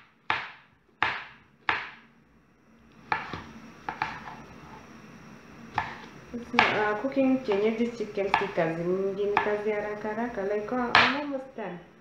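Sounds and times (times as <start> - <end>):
knife chopping on wooden board: 0.0 - 2.0, 3.0 - 4.4, 5.7 - 6.8, 10.9 - 11.2.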